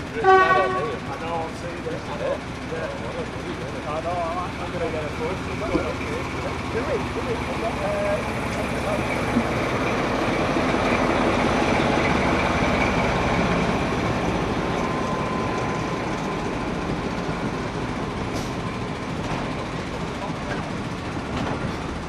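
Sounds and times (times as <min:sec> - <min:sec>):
diesel train engine: 0:00.0 - 0:22.0
train wheels on rails: 0:00.0 - 0:22.0.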